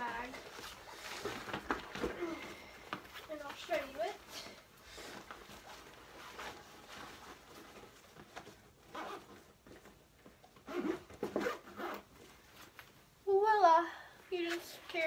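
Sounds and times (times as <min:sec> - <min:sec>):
plastic rustling: 0:00.0 - 0:13.1
zipper pulls: 0:08.9 - 0:09.4, 0:10.6 - 0:12.1.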